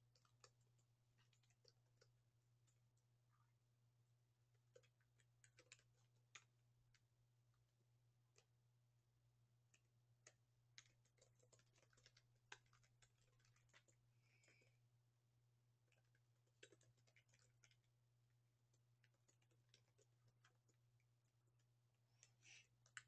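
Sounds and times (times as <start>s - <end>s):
computer keyboard typing: 10.8s - 14.6s, 16.0s - 17.8s.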